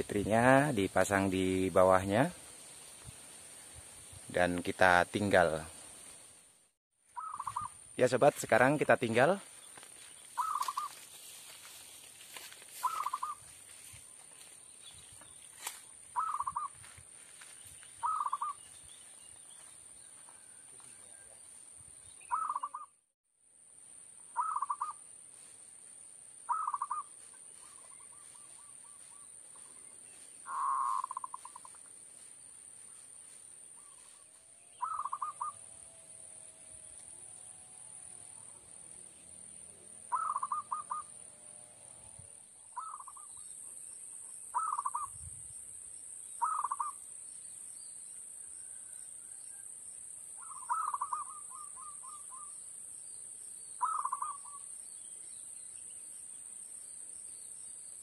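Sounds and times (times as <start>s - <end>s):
dove trilled cooing: 7.2s - 7.8s, 10.4s - 11.0s, 12.8s - 13.4s, 16.2s - 16.8s, 18.0s - 18.6s, 22.3s - 22.9s, 24.4s - 25.0s, 26.5s - 29.1s, 30.5s - 31.8s, 34.8s - 35.7s, 40.1s - 41.2s, 42.8s - 43.4s, 44.5s - 45.1s, 46.4s - 47.0s, 50.4s - 52.5s, 53.8s - 54.6s.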